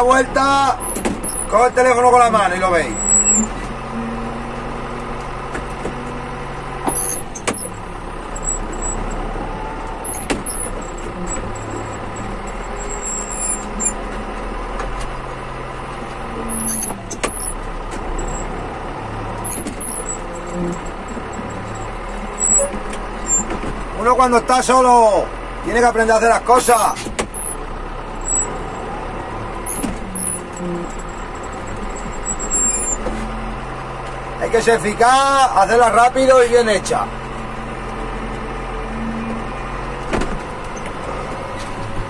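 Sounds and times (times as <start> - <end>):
tractor engine running: 0.0 - 42.0
sharp knocks and rattles: 0.8 - 1.7, 6.8 - 15.4, 16.4 - 24.0, 26.8 - 34.3.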